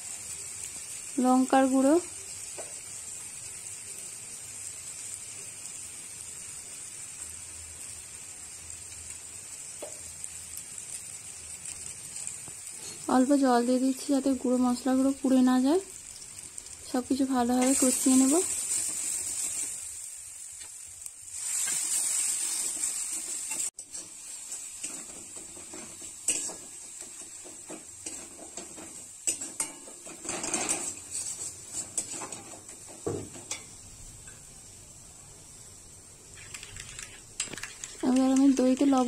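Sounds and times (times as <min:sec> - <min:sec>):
masala sizzling in a pan: 0:00.0 - 0:39.0
metal spatula scraping and tapping: 0:22.7 - 0:34.4.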